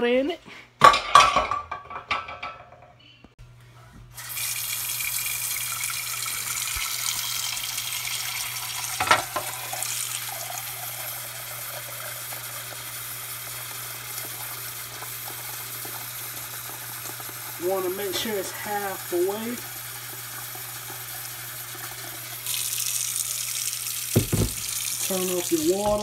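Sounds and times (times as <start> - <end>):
faucet water filling pot: 4.2 - 26.0
knock: 24.2 - 24.7.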